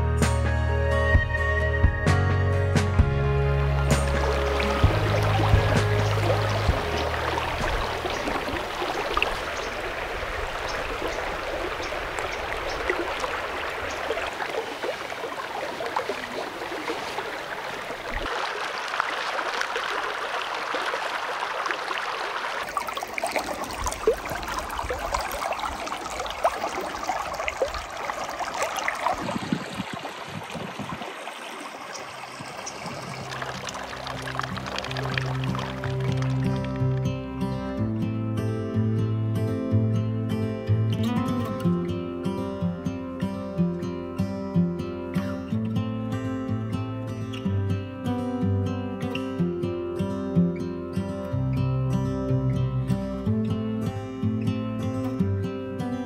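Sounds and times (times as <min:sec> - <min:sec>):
stream water running: 0:03.4 - 0:37.8.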